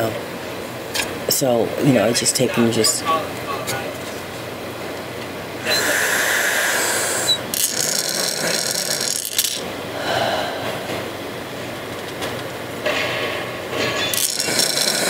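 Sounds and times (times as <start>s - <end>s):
air rushing through breathing tube: 5.6s - 9.3s, 10.0s - 11.1s.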